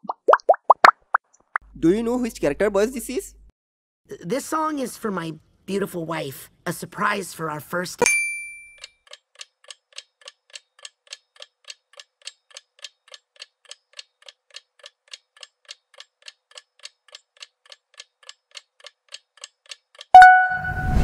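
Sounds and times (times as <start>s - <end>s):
clock ticking: 9.1s - 20.4s.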